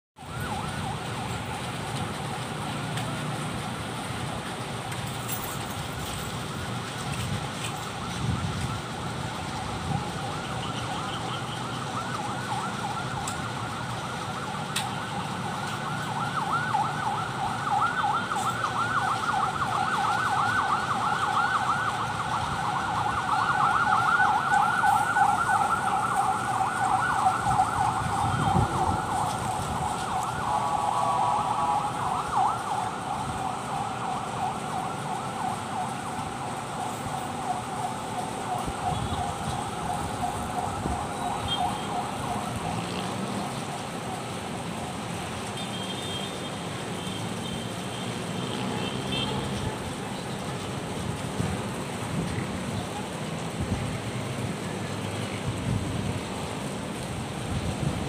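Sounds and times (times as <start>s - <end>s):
siren yelping: 7.6s - 44.4s.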